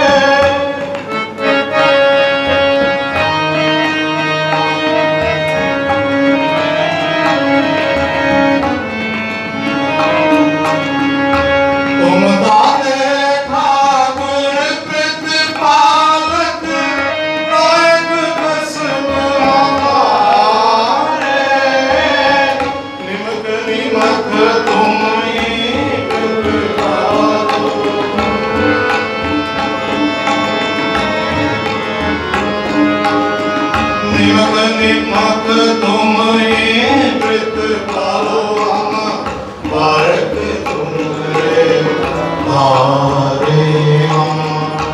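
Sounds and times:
harmonium playing chords: 0.0s - 44.9s
tabla drumming: 0.0s - 44.9s
person singing: 34.0s - 44.9s.

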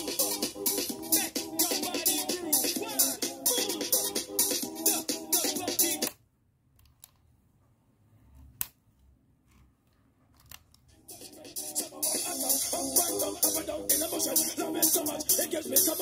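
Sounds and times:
music from small speaker: 0.0s - 6.1s, 10.9s - 16.0s.

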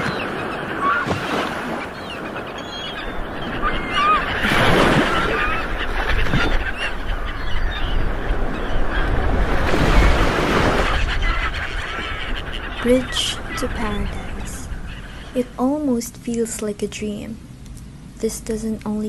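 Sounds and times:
waves washing: 0.0s - 7.3s, 7.9s - 15.6s
birds chirping: 0.0s - 17.3s
wind rumbling on microphone: 2.7s - 15.6s.

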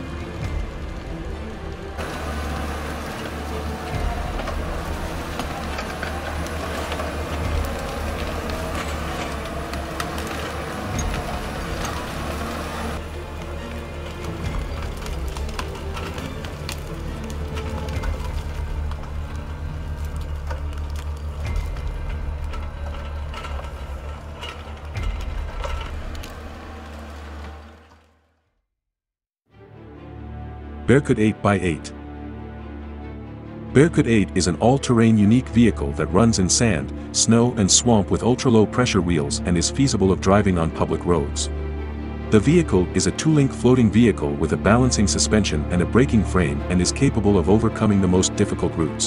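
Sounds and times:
vehicle engine droning: 0.0s - 28.3s
metallic clanks and knocks: 20.4s - 26.7s.

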